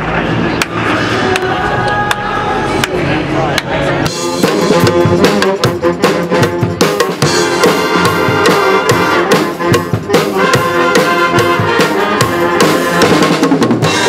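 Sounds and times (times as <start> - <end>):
sharp percussion hits: 0.3 - 14.0
brass and saxophones playing: 0.8 - 14.0
driving drum beat: 3.6 - 14.0.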